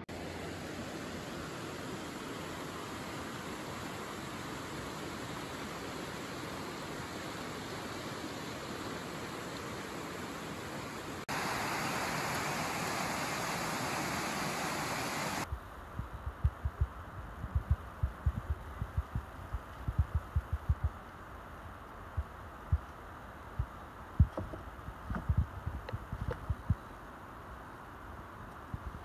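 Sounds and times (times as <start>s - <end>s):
creek water cascading: 0.0s - 15.5s
dull low thumps: 15.5s - 21.0s, 23.5s - 26.8s.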